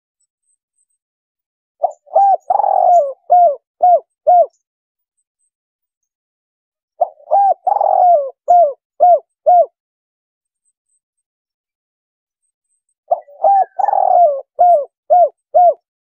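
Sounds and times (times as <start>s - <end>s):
dove cooing: 1.8s - 4.6s, 7.0s - 9.8s, 13.1s - 15.9s.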